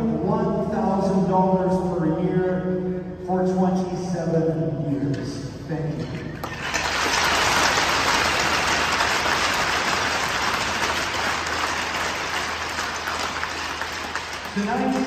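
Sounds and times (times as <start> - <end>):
crowd applauding: 6.4 - 15.0.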